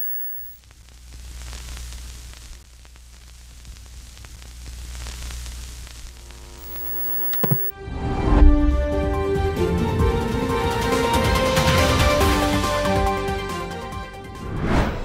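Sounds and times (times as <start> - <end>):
television static hiss: 0.0 - 7.7
low hum: 6.1 - 7.7
sharp clicks: 6.6 - 7.7.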